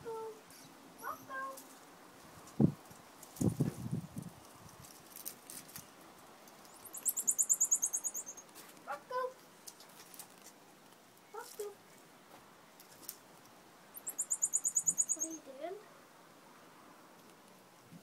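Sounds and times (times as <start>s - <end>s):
marmoset twittering chirps: 6.7s - 8.5s, 13.9s - 15.5s.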